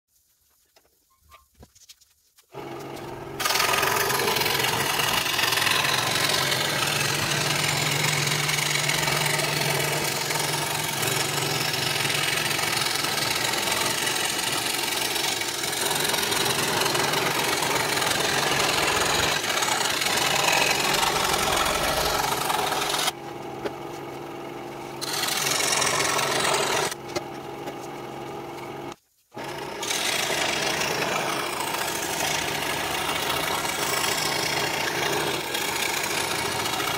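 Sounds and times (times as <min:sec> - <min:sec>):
scroll saw cutting wood: 0:02.5 - 0:36.9.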